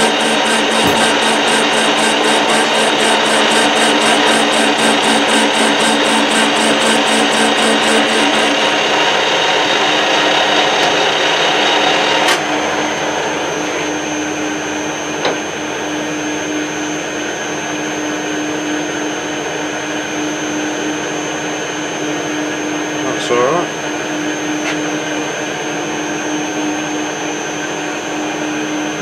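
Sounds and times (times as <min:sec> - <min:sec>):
metal lathe cutting: 0:00.0 - 0:13.9
sharp click: 0:00.7 - 0:01.7.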